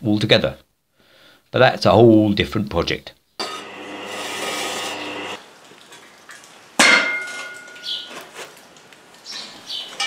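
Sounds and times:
pillar drill boring through steel: 3.4s - 5.4s
metallic clang of steel on steel: 6.8s - 8.0s.

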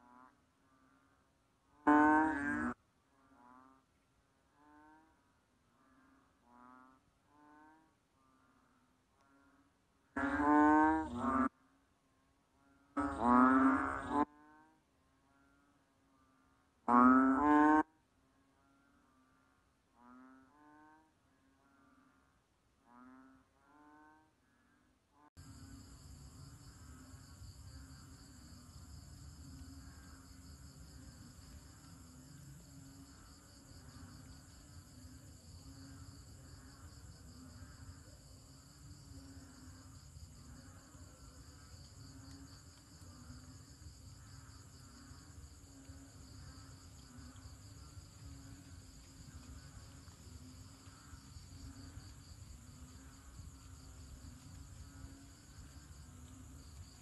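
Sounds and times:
crickets trilling: 25.4s - 57.0s.

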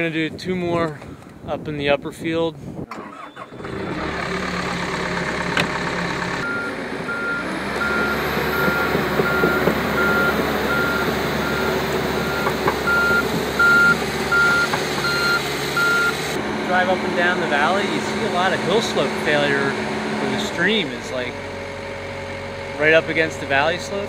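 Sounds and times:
excavator diesel engine running: 3.0s - 24.0s
warning alarm beeps: 6.4s - 16.2s.

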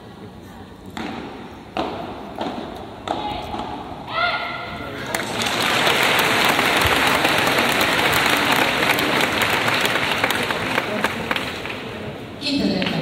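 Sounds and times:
crowd applauding: 5.0s - 12.1s.

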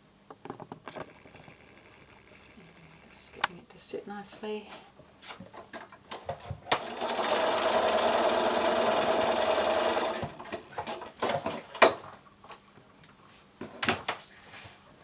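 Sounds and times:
electric sewing machine stitching: 1.0s - 3.5s, 6.7s - 10.4s
sharp clicks: 1.0s - 3.6s.

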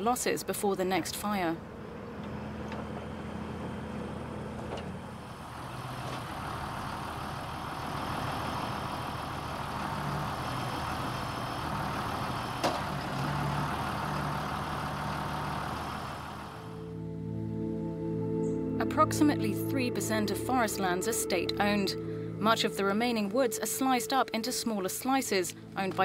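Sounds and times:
vehicle engine running at low revs: 1.6s - 16.9s.

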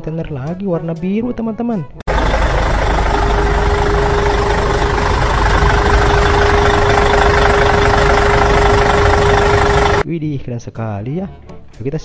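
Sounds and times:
heavy truck engines rumbling: 2.1s - 10.0s
steady held tone: 2.1s - 10.0s.

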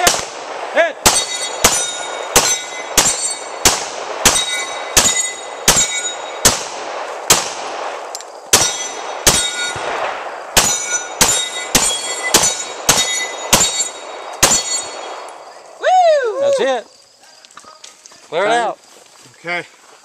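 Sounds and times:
pistol shots: 0.0s - 15.4s
steel plate ringing: 1.1s - 3.6s, 4.2s - 6.5s, 8.6s - 9.9s, 10.6s - 15.2s.

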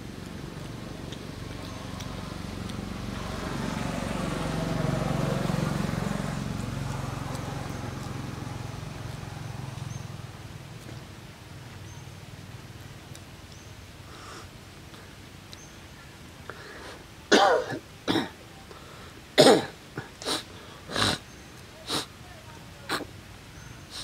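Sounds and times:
vehicle passing by: 0.0s - 13.0s.

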